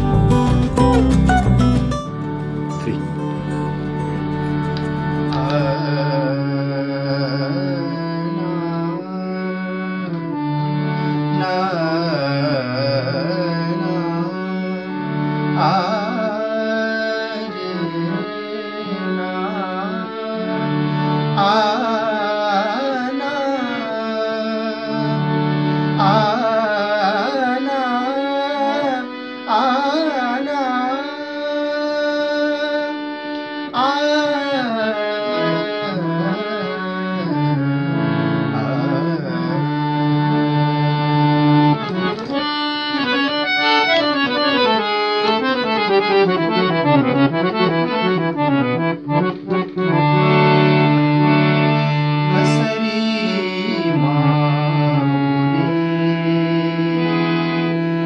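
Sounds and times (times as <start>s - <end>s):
man singing ornamented melody: 0.0s - 4.6s, 5.2s - 10.3s, 11.3s - 20.5s, 21.4s - 25.3s, 26.0s - 33.0s, 33.7s - 37.6s, 38.2s - 41.0s, 51.8s - 58.0s
harmonium reed chords: 0.0s - 58.0s.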